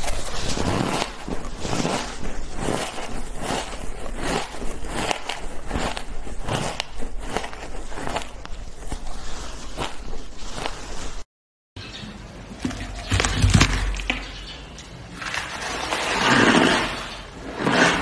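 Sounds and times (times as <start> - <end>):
chewing crunchy ice: 0.0 - 10.9.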